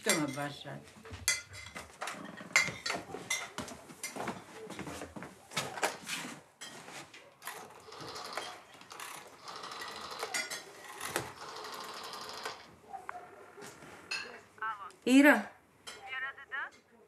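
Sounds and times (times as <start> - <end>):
rotary telephone dial clicking: 7.5 - 12.7.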